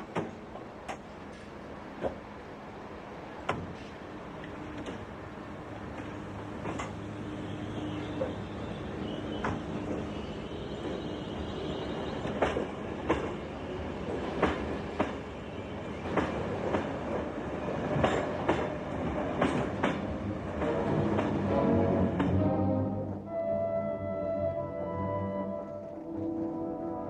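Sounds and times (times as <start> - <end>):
train rumble: 0.0 - 22.9
wheels clacking over rail joints: 5.9 - 7.1, 12.0 - 13.4, 14.0 - 15.3, 15.9 - 22.4
music: 20.7 - 27.0.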